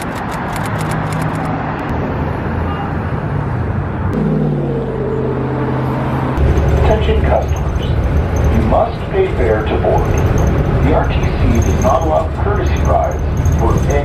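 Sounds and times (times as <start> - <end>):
cars passing: 0.0 - 14.0
steady engine hum: 0.0 - 14.0
low rumble: 4.4 - 14.0.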